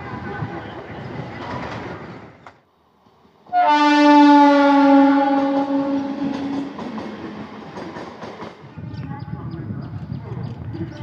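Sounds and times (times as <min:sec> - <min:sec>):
passing train running noise: 0:00.0 - 0:11.0
loud train horn blast: 0:03.5 - 0:06.7.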